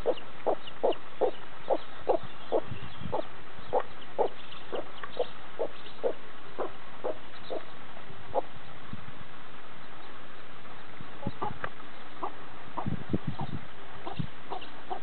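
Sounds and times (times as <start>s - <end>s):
chicks peeping: 0.0s - 7.7s, 11.2s - 15.0s
hen clucking: 0.0s - 7.7s, 11.2s - 15.0s.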